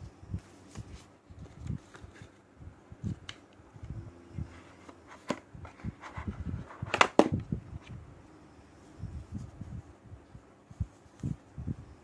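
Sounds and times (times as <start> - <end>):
paper and cardboard handling: 0.5 - 2.4, 4.5 - 7.4.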